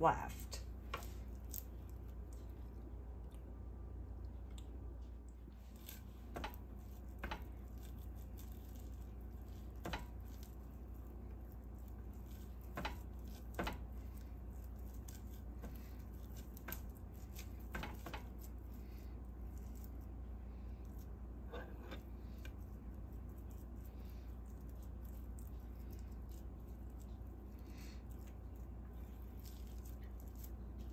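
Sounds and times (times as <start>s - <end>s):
low hum: 0.0s - 17.6s.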